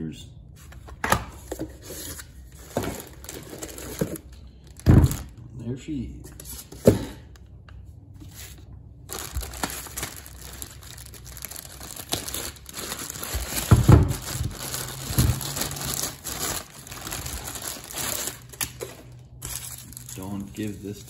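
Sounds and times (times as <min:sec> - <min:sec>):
plastic bag crinkling: 0:02.6 - 0:05.4, 0:09.0 - 0:21.0.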